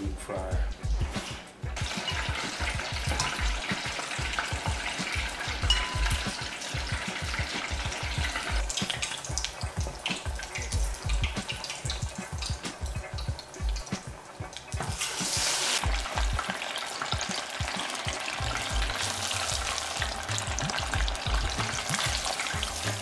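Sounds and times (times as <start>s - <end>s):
oil sizzling and crackling: 0.8s - 23.0s.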